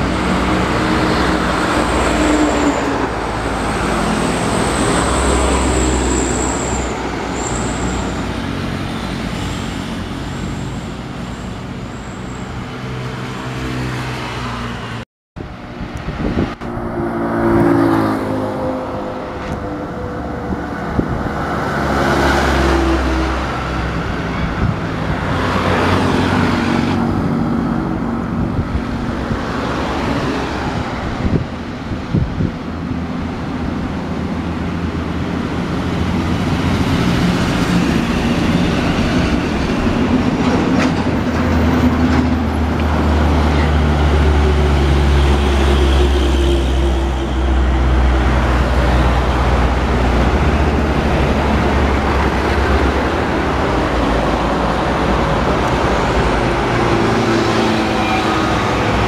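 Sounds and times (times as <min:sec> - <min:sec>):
highway traffic: 0:00.0 - 0:59.0
truck engine drone: 0:30.7 - 0:59.0.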